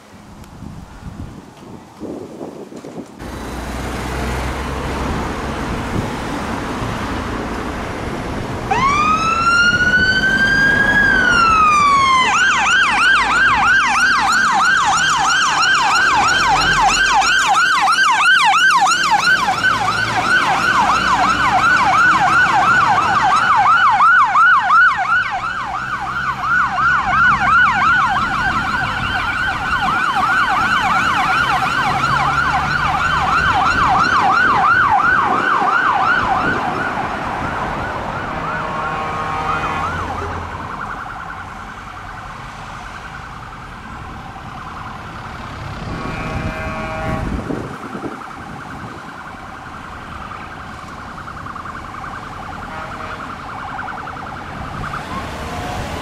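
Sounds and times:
fire engine siren wailing and yelping: 0:04.3 - 0:56.0.

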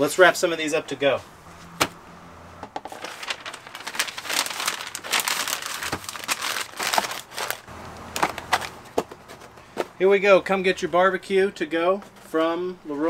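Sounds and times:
paper and plastic bag crinkling: 0:02.9 - 0:09.5.

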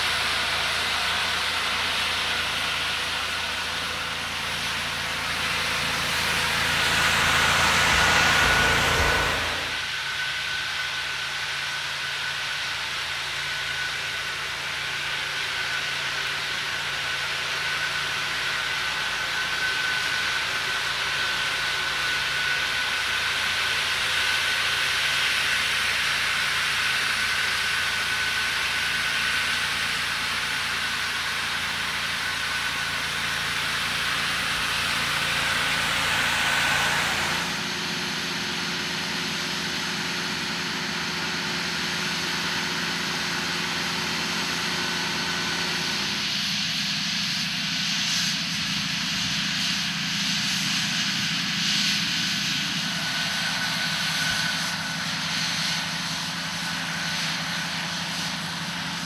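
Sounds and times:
low machine hum: 0:00.0 - 0:11.7, 0:29.7 - 0:46.4
tractor engine: 0:00.0 - 0:59.0
turbine blower rushing air: 0:00.0 - 0:59.0.

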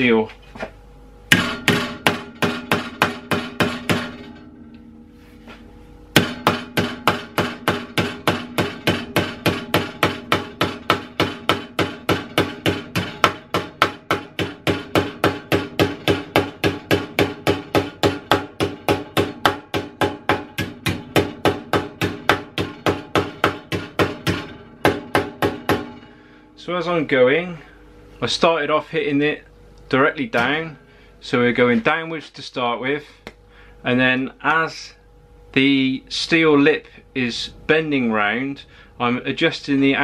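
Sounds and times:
hammer tapping sheet steel: 0:01.3 - 0:04.5, 0:06.1 - 0:26.3.

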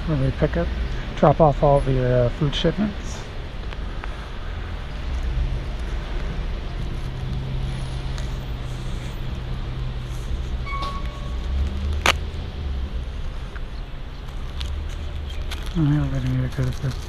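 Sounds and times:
brief high tone: 0:10.6 - 0:11.3.

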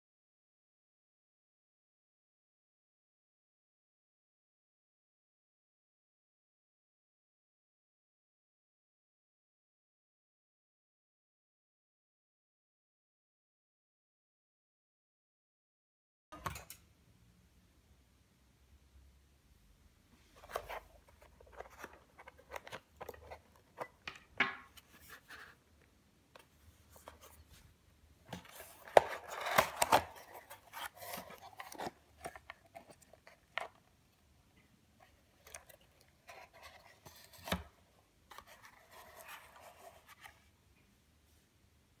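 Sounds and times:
control box handling clicks and scrapes: 0:20.4 - 0:24.2, 0:28.3 - 0:33.9, 0:35.0 - 0:40.4.

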